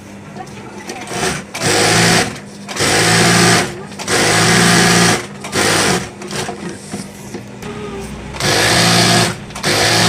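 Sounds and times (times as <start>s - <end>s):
sewing machine stitching: 1.0s - 6.5s, 8.4s - 10.0s.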